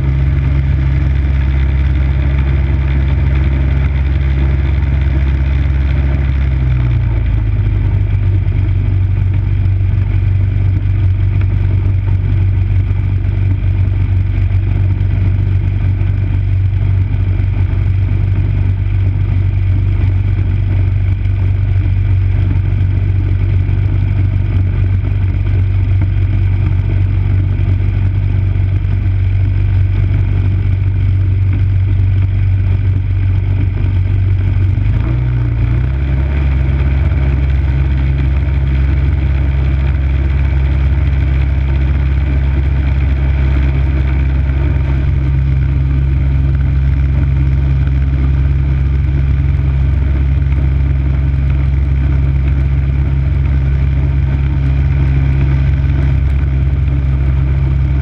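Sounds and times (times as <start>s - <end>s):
snow blower engine running: 0.0s - 58.0s.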